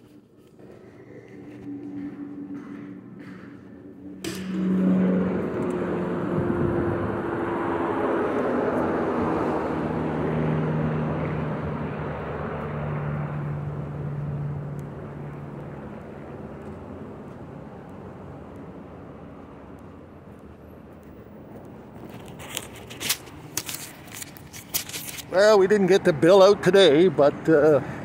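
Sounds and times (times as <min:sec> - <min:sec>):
vehicles passing on road: 0:00.0 - 0:28.0.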